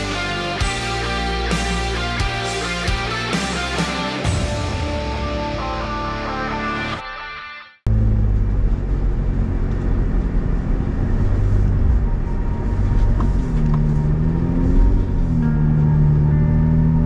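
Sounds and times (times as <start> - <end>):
guitar music: 0.0 - 7.8, 13.3 - 17.0
car engine droning: 7.9 - 17.0.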